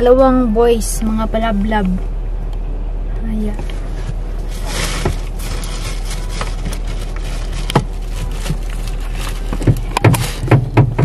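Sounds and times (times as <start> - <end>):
hiss and low hum in car: 0.0 - 11.0
sharp knocks: 9.6 - 11.0.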